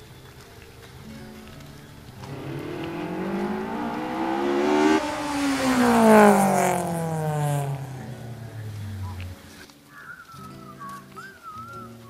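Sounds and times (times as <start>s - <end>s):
vehicle engine speeding up and passing: 2.1s - 9.4s.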